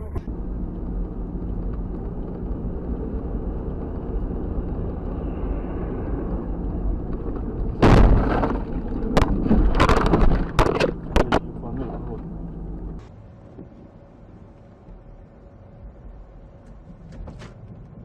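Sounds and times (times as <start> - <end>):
car engine and road noise: 0.0 - 18.0
bangs and crunches: 7.8 - 11.5
loud car crash: 7.8 - 11.5.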